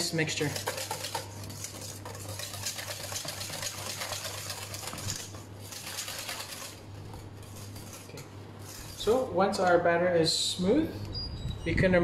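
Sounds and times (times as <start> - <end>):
whisk clicking against metal bowl: 0.0 - 9.0.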